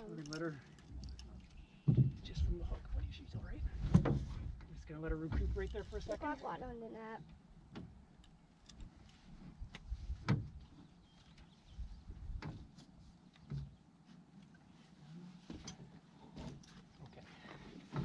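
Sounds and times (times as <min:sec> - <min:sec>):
knocks and thumps on boat deck: 0:01.8 - 0:02.6, 0:03.3 - 0:05.7, 0:10.2 - 0:10.6.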